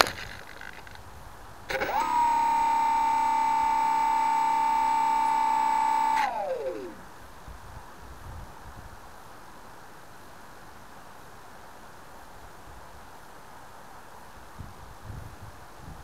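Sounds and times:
electric motor and propeller whine: 1.7 - 7.1.

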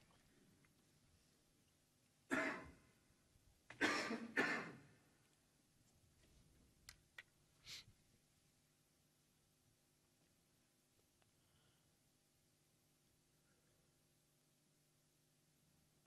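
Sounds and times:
person coughing: 2.3 - 2.8, 3.7 - 4.9.

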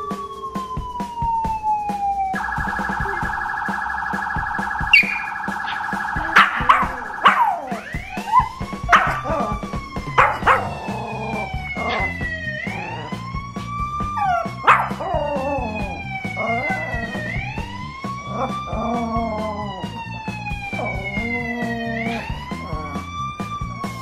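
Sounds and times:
police siren wailing: 0.0 - 24.0
puppy barking: 5.0 - 9.5, 10.1 - 12.1, 14.2 - 15.5
puppy howling: 6.2 - 13.4, 14.0 - 24.0.

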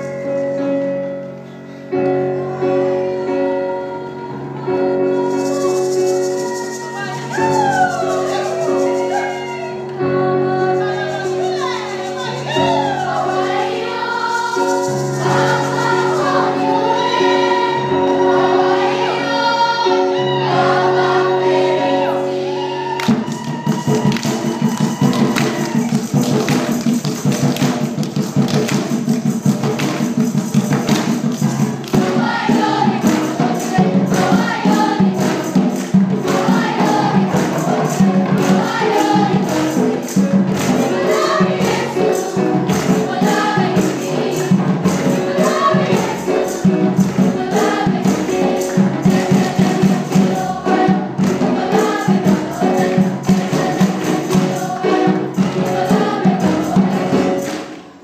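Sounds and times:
children's choir singing: 2.5 - 29.1, 29.8 - 58.0
driving percussive beat: 23.0 - 57.8.

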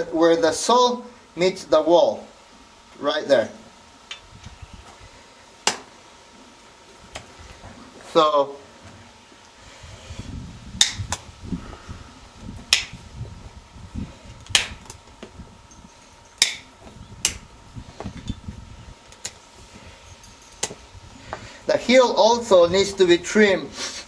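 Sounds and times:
hoof nippers snapping: 10.8 - 11.3, 12.7 - 13.0, 14.4 - 15.0, 16.4 - 17.5.

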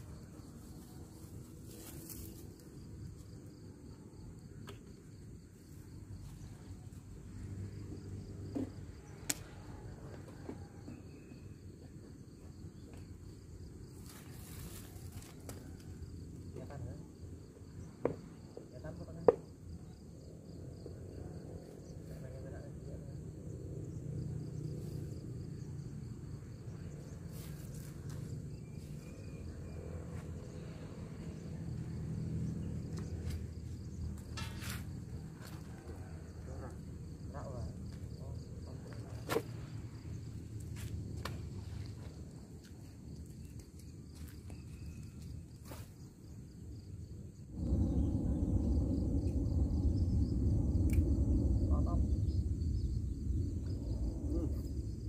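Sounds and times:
insect drone: 0.0 - 55.0
low steady rumble: 47.3 - 55.0
wind buffeting microphone: 47.5 - 55.0.

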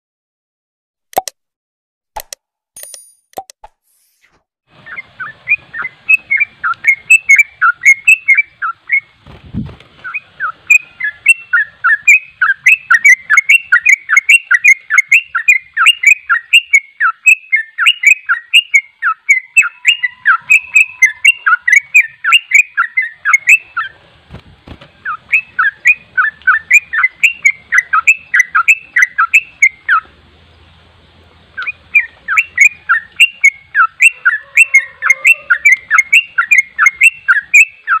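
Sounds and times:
bird singing whistled notes: 4.8 - 9.2, 10.0 - 24.0, 25.0 - 30.1, 31.6 - 38.0.

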